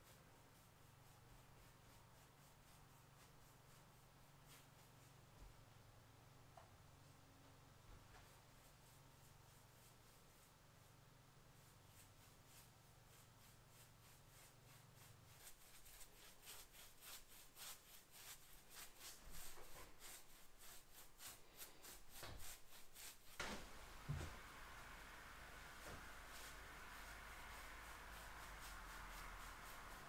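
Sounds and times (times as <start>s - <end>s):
paintbrush strokes on wood: 0.0s - 30.0s.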